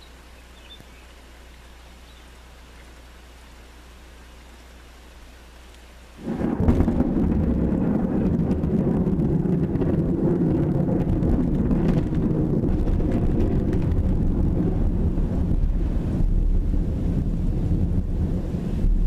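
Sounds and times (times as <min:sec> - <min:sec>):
steady rain falling: 0:00.0 - 0:19.0
loud low thunder rumbling: 0:06.2 - 0:19.0.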